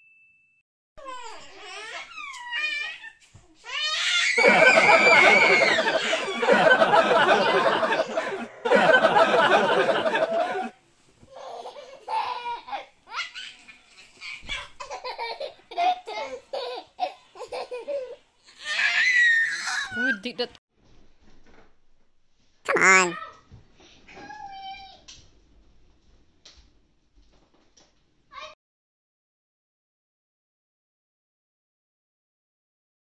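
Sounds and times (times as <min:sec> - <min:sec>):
child belly laughing: 0:04.4 - 0:10.7, 0:22.7 - 0:23.1
child giggling breathily: 0:04.4 - 0:10.7.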